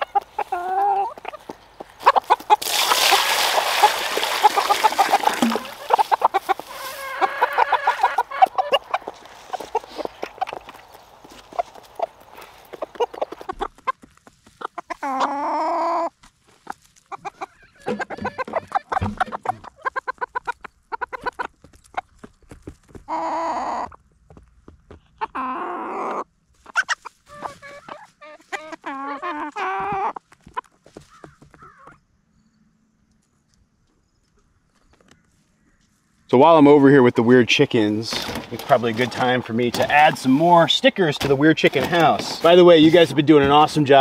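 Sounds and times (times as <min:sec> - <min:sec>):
chickens clucking: 0:00.0 - 0:22.4, 0:23.0 - 0:24.1, 0:25.0 - 0:32.0, 0:36.5 - 0:44.0.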